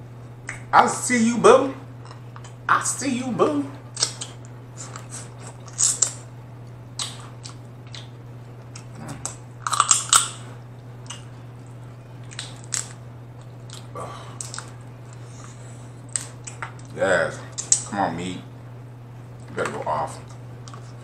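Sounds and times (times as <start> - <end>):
chewing crab meat: 2.0 - 2.7, 3.9 - 18.0
crab shell crunching: 7.0 - 10.4, 12.2 - 17.9.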